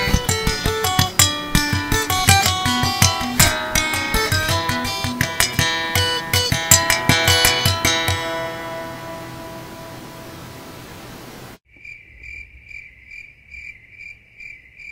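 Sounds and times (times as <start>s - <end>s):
plucked string notes and chord: 0.0s - 10.5s.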